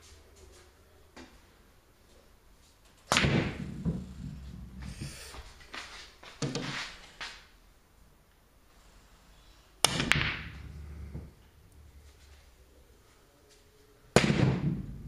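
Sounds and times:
pool balls clicking: 3.0 - 5.2, 9.8 - 11.5
balls rolling on cloth: 3.0 - 6.8.

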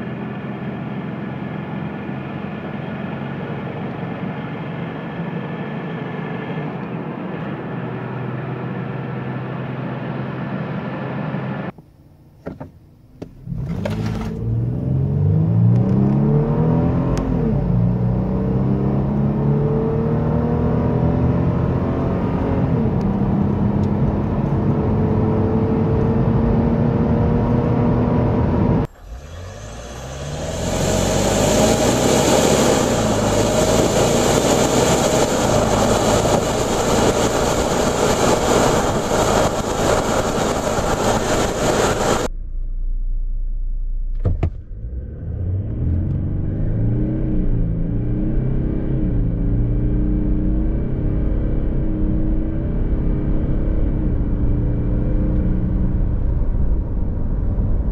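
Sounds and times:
engine pitch rising with upshifts: 0.0 - 11.8, 13.2 - 57.9
car engine accelerating hard: 13.3 - 42.4, 43.0 - 57.9.

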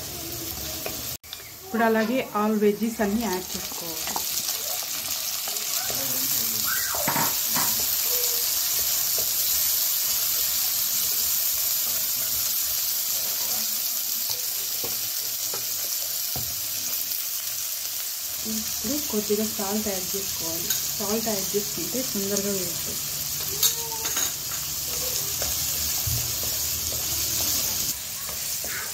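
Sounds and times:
vegetables sizzling in hot oil: 0.0 - 28.9.

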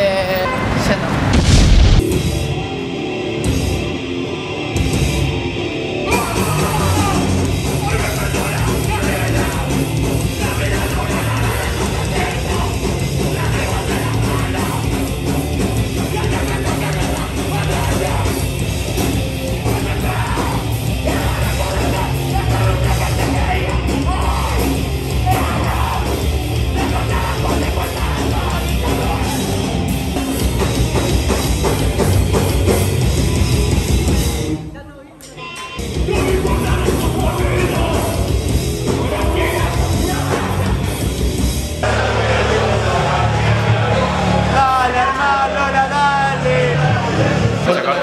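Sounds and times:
hardcore band playing: 0.0 - 48.0
shouted vocals: 41.8 - 48.0.

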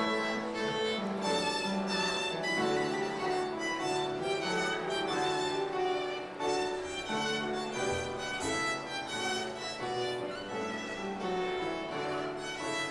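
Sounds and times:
violin melody: 0.0 - 12.9.

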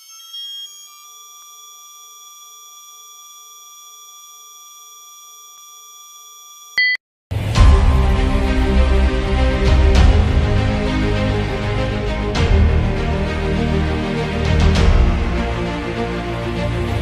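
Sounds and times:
short beep: 6.8 - 7.0.

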